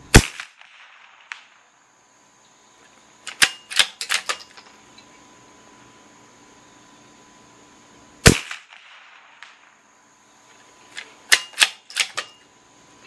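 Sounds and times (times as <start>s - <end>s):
rifle bolt metallic clicks: 3.3s - 4.6s, 11.0s - 12.4s.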